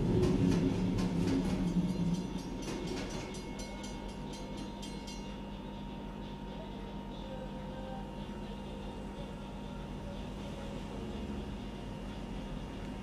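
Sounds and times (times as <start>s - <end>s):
train passing: 0.0s - 5.5s
low hum: 0.0s - 13.0s.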